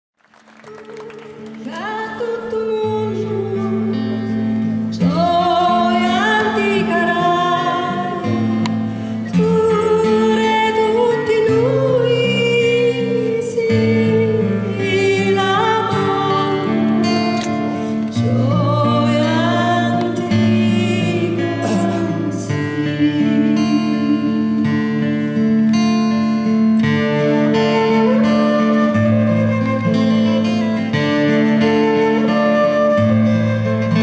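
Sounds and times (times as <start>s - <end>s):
acoustic guitar: 0.4s - 34.0s
woman singing slow song: 0.7s - 25.2s
flute: 26.4s - 34.0s.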